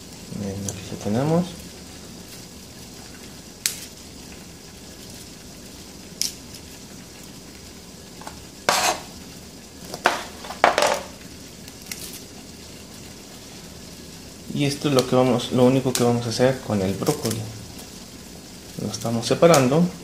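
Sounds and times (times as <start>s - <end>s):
broccoli snapping and tearing: 11.7s - 12.2s.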